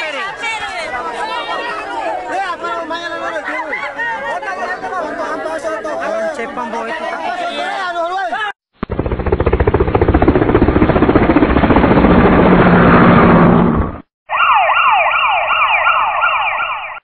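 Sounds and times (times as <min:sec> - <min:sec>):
loud rapid rattling buzz: 0:08.8 - 0:13.7
siren-like rising wails: 0:11.9 - 0:17.0.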